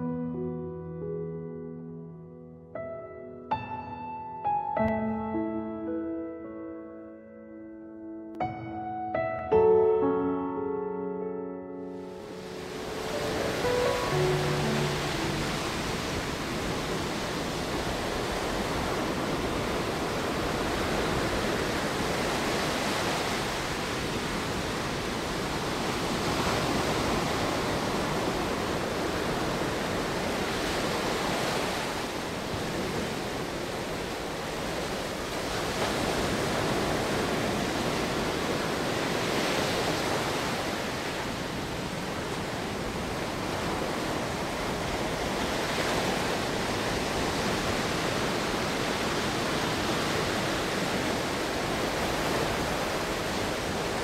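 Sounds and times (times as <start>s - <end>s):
sea surf waves rushing: 11.9s - 54.0s.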